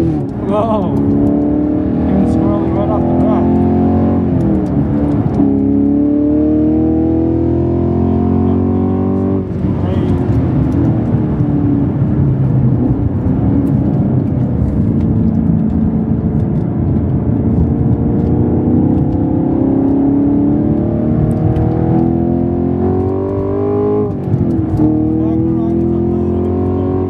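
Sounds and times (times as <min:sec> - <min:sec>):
car engine revving in cabin: 0:00.0 - 0:27.0.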